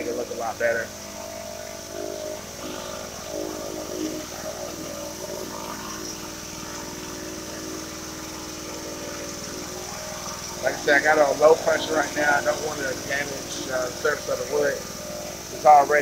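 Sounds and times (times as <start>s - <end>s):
pressure washer engine running: 0.0s - 16.0s
water spray hissing: 0.0s - 16.0s.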